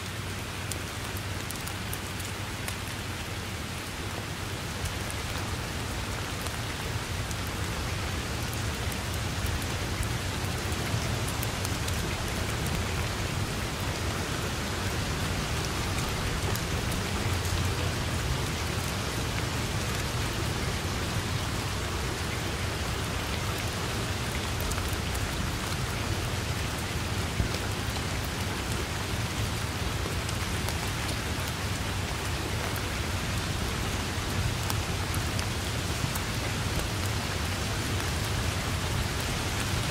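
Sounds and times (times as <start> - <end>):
steady rain on grass and trees: 0.0 - 39.9.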